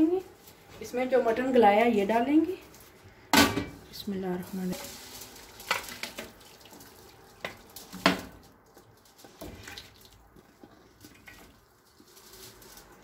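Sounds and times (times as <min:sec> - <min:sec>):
broth pouring and splashing: 0:04.4 - 0:13.0.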